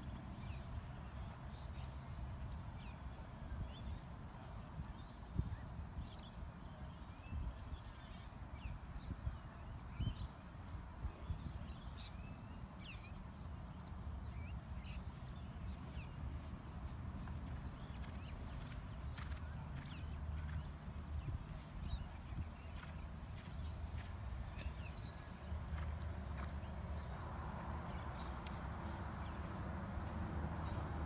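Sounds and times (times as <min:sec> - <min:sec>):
wild birds chirping: 0:11.2 - 0:31.0.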